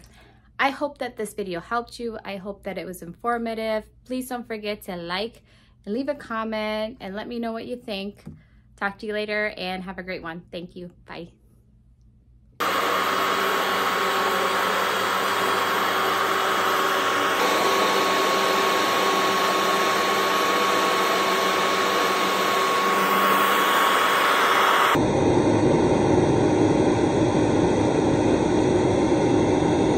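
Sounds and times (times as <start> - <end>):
carpet cleaner suction motor whirring: 12.6 - 25.0.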